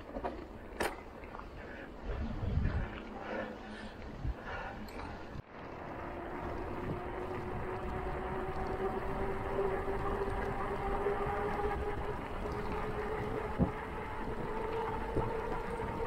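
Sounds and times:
bicycle wheels humming: 0.0 - 16.0
wind on microphone: 2.0 - 3.1, 4.1 - 16.0.

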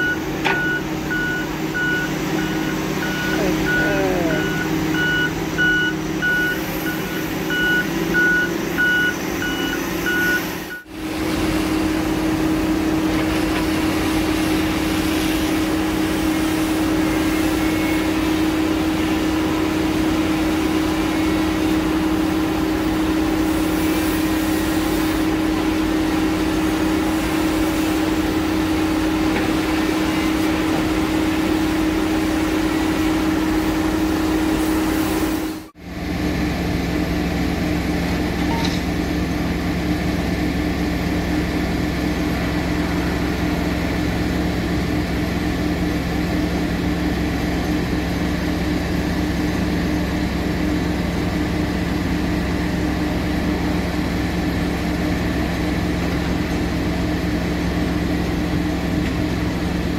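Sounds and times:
backup alarm beeping: 0.0 - 10.9
diesel engine running: 0.0 - 59.9.

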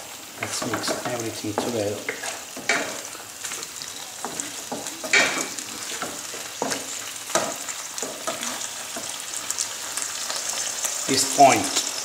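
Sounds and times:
pasta sizzling in a frying pan: 0.0 - 12.0
utensil scraping and knocking pan: 0.4 - 3.1.

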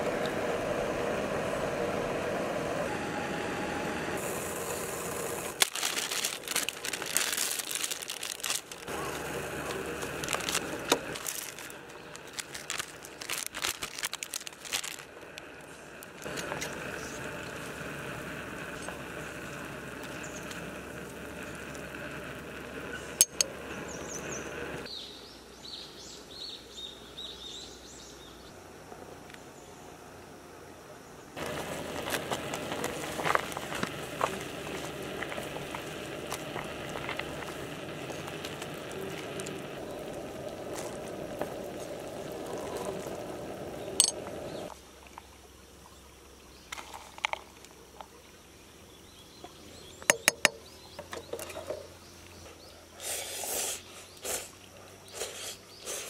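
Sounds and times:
steady hiss: 4.0 - 27.2, 28.4 - 50.0, 52.9 - 56.0
foil pouch crinkling: 5.4 - 16.8, 31.4 - 43.2.

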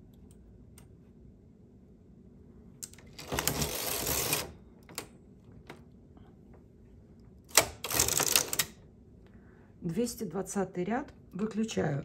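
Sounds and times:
knitting machine carriage passing: 3.1 - 4.6.

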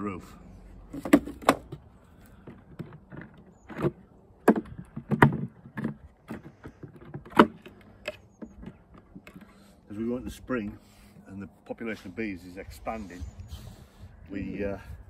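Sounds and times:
wooden hive parts knocking: 2.4 - 9.5.

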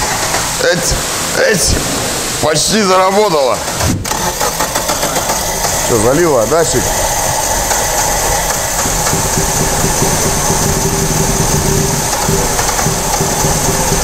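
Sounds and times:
car engine running roughly: 4.1 - 14.0.

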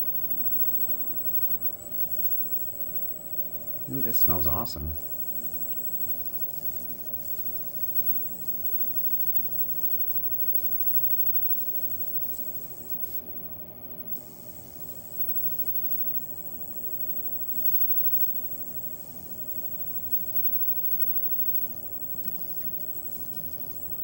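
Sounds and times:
faint low hum: 0.0 - 5.3.

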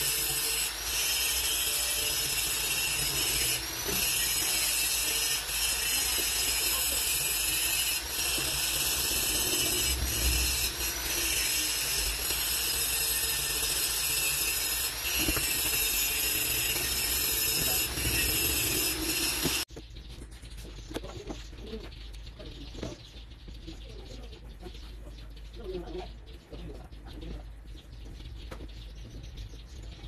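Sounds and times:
steady hissing: 0.0 - 19.7.

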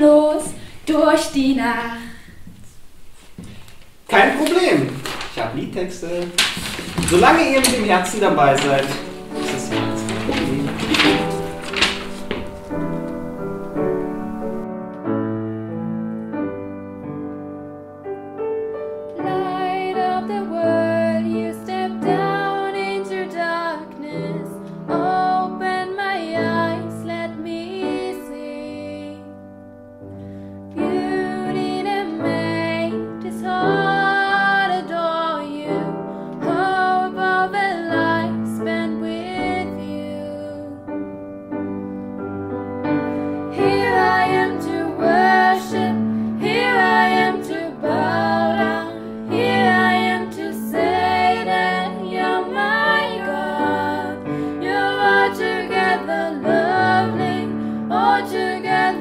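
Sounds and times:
women singing a carol: 0.0 - 2.3, 19.2 - 29.4, 30.8 - 40.9, 43.5 - 59.0
piano accompaniment: 0.0 - 59.0.

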